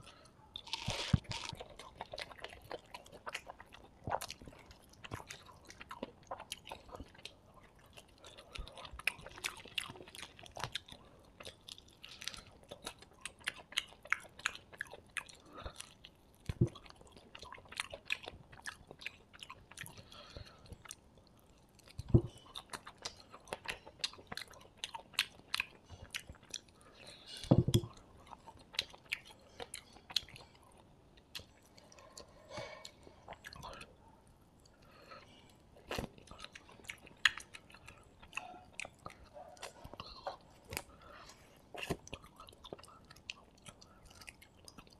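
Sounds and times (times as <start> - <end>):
man chewing crunchy food: 0.0 - 44.9.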